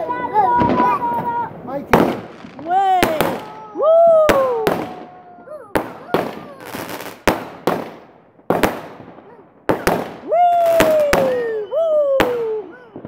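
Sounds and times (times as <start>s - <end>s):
fireworks bangs: 0.0s - 13.0s.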